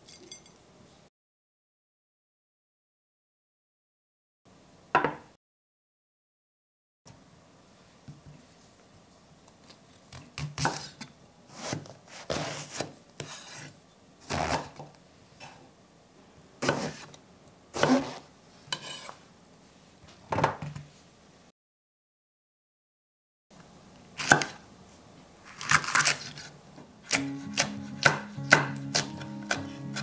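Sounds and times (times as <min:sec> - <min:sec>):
knife slicing through eggplant: 0:09.6 - 0:14.8, 0:16.6 - 0:17.2, 0:17.8 - 0:19.2, 0:25.5 - 0:30.0
knife chopping on wooden board: 0:10.1 - 0:10.9, 0:16.6 - 0:17.1, 0:17.8 - 0:18.2, 0:24.2 - 0:24.6, 0:27.1 - 0:30.0.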